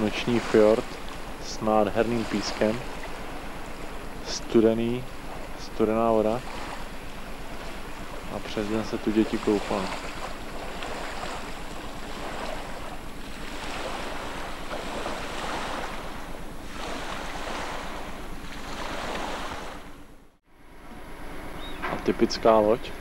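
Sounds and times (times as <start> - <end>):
small waves washing onto beach: 0.0 - 20.1.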